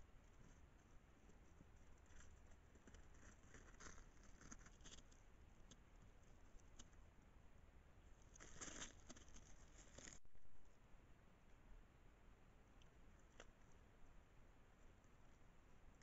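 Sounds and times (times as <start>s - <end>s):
animal scratching and rustling in snow: 0.2s - 5.4s, 8.1s - 10.2s.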